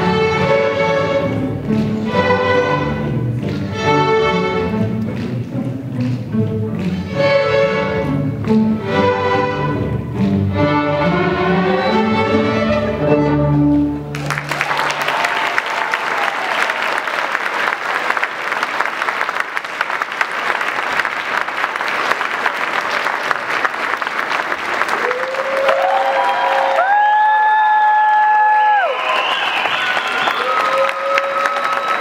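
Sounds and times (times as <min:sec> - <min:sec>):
audience applause: 0:14.1 - 0:32.0.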